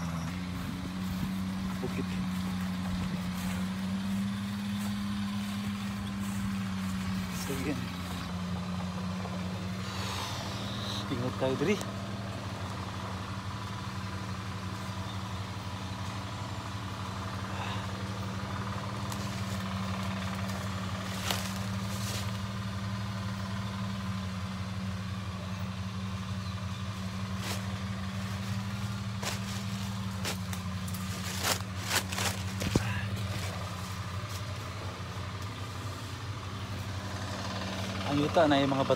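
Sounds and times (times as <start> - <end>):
low mechanical drone: 0.0 - 38.9
twigs snapping underfoot: 19.0 - 22.4, 28.7 - 34.6.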